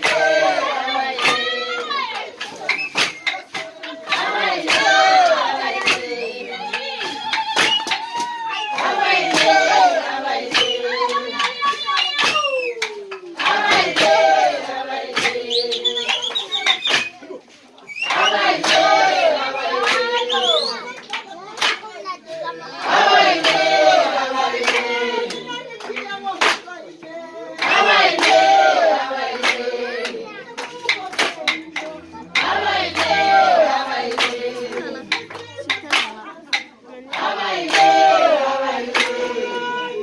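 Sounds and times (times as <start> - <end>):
group of voices chanting: 0.0 - 16.6, 18.0 - 40.0
people singing loudly: 0.0 - 17.1, 18.0 - 40.0
sharp hand claps: 0.0 - 17.2, 17.9 - 22.1, 22.9 - 26.8, 27.6 - 39.3.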